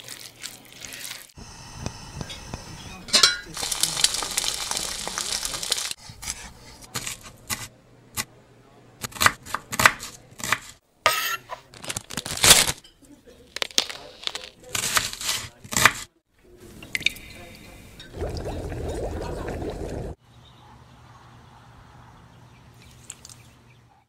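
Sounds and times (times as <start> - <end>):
gas burner flame hiss: 1.4 - 6.7
plastic packet crinkling: 3.5 - 6.0, 11.7 - 12.8, 13.5 - 14.6.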